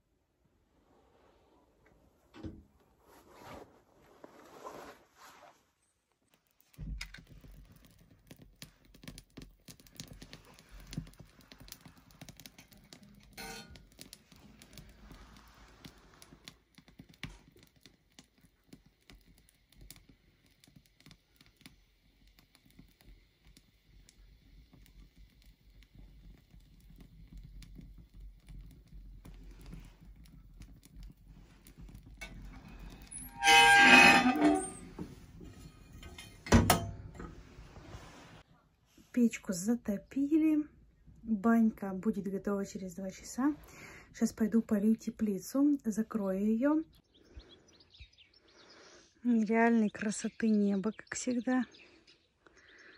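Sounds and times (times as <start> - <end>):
firewood crackling and popping: 5.8 - 38.0
ringing metal scrape: 33.1 - 36.4.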